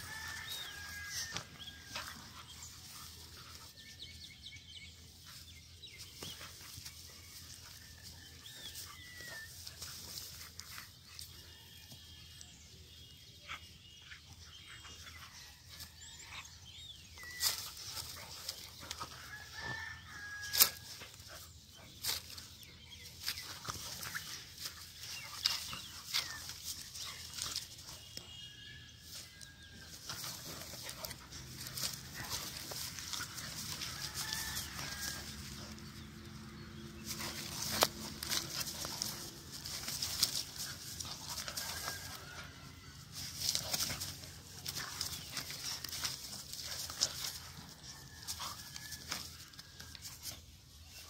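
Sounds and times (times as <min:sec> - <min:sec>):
dogs fighting: 0:20.6 - 0:27.9, 0:29.8 - 0:50.4.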